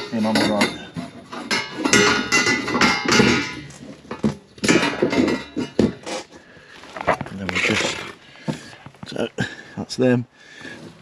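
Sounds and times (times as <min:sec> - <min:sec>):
copper pipes knocking and clinking: 0:00.0 - 0:06.3.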